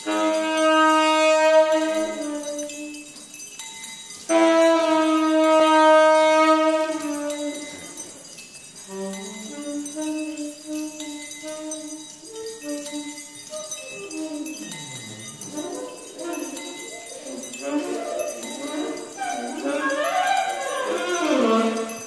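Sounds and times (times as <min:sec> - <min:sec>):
tenor saxophone playing: 0:00.0 - 0:03.2, 0:04.3 - 0:08.0, 0:08.9 - 0:14.8, 0:15.5 - 0:16.6.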